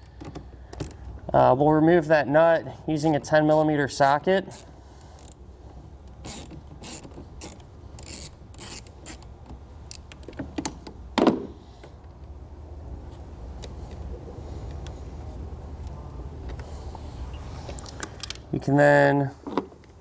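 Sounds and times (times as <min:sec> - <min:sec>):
hand ratchet clicking: 0:06.2 - 0:10.3.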